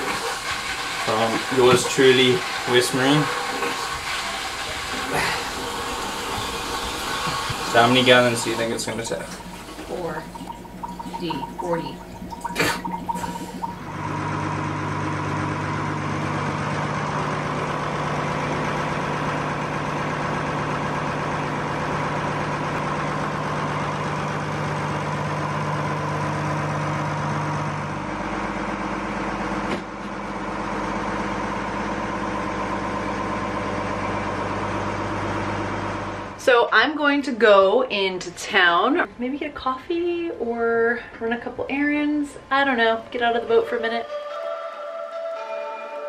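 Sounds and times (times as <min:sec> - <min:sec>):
boat engine idling: 0:04.8 - 0:29.6.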